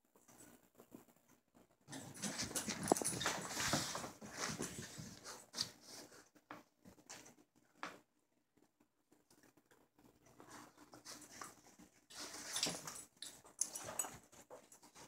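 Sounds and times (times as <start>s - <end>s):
puppy scuffling on a rug: 1.9s - 7.0s.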